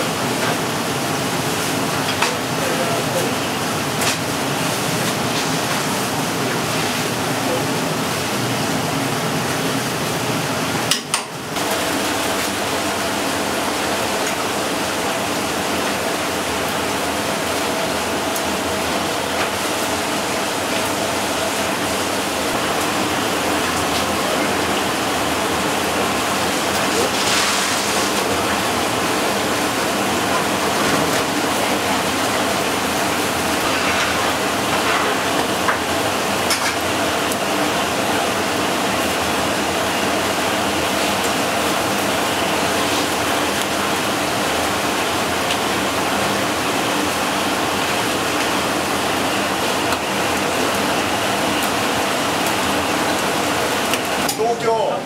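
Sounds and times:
fish sizzling over charcoal: 10.8s - 54.3s.

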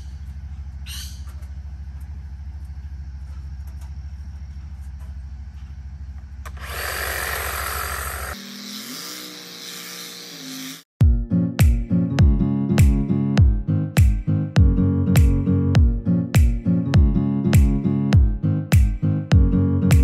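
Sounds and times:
hedge trimmer motor hum: 6.4s - 10.8s
blades cutting foliage: 6.5s - 10.9s.

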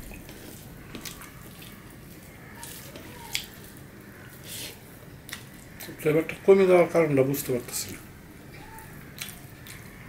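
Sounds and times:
chewing with wet mouth clicks: 0.0s - 4.4s, 5.2s - 5.7s, 8.8s - 9.9s
rice and curry squished by hand: 0.0s - 6.0s, 8.5s - 10.0s.

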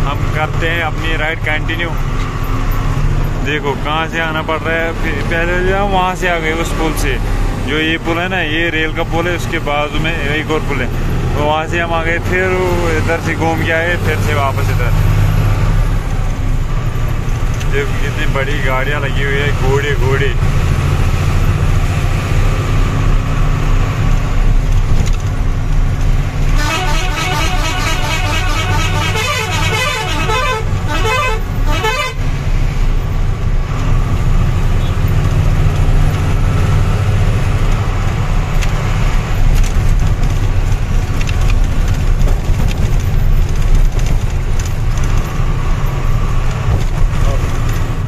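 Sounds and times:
road noise: 0.0s - 48.0s
truck diesel engine: 0.0s - 48.0s
horn playing pulsing tune: 26.5s - 32.2s.

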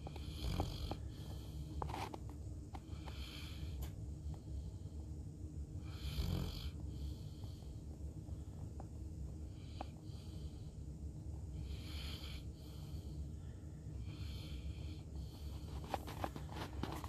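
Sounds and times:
dog snoring: 0.0s - 2.0s, 2.9s - 3.9s, 5.8s - 7.8s, 11.5s - 13.1s, 14.0s - 16.1s.

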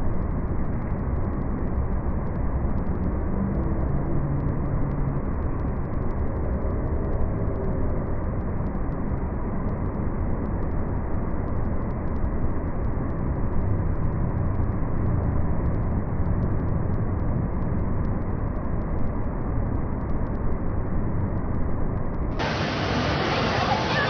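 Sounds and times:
indoor waterfall rushing: 22.3s - 24.0s.

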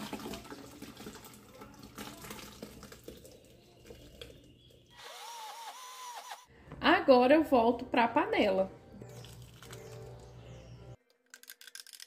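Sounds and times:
liquid splashing into blender jar: 0.0s - 4.4s.

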